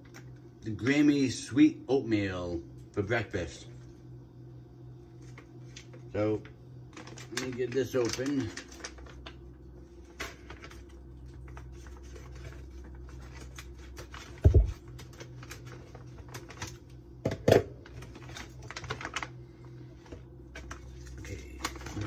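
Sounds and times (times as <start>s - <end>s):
food pouch crinkling: 6.9s - 9.4s.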